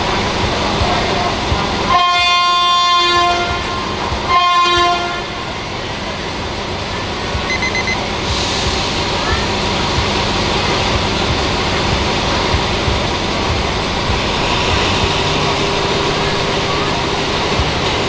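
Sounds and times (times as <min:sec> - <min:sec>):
train rumbling: 0:00.0 - 0:18.0
locomotive horn blasts: 0:01.9 - 0:05.4.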